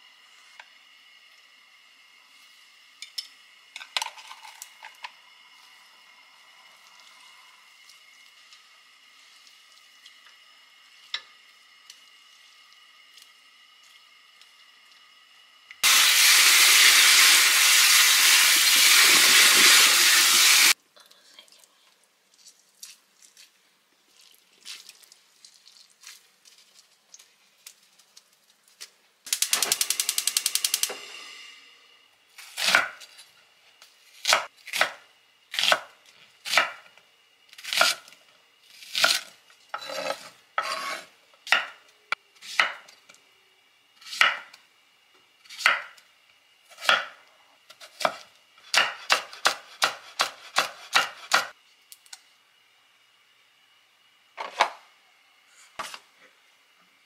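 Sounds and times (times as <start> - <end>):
knife chopping on wooden board: 42.6 - 42.8, 47.9 - 51.5.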